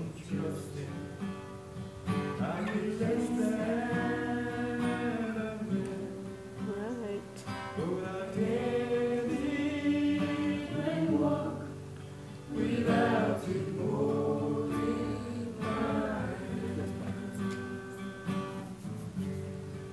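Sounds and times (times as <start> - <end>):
strummed acoustic guitar: 0.0 - 19.9
person singing gospel song: 2.1 - 18.4.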